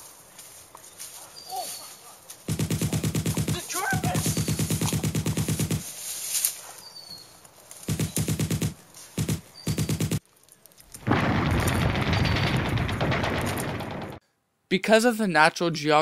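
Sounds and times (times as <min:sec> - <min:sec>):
machine-gun bursts: 0:02.5 - 0:05.9, 0:07.9 - 0:10.2.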